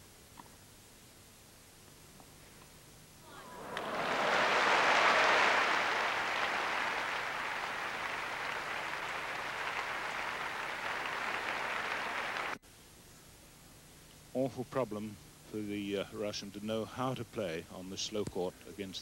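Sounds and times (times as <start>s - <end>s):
crowd applauding: 3.3s - 12.6s.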